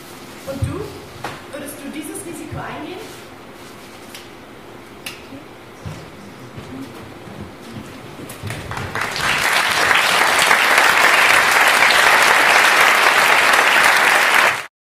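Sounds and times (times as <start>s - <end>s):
audience applauding: 8.4s - 14.7s.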